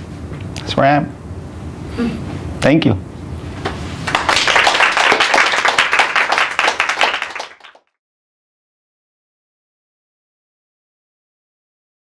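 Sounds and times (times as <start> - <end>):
audience applauding: 4.1 - 8.0.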